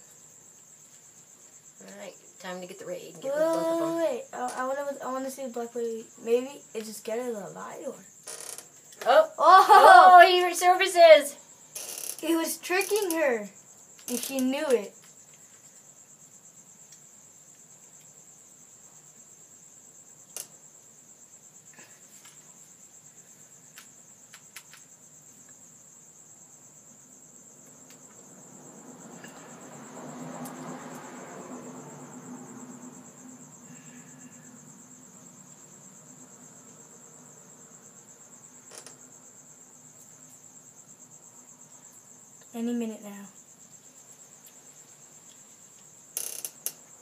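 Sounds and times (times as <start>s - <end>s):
crickets trilling: 0.0s - 47.0s
sharp clicks: 23.8s - 24.9s.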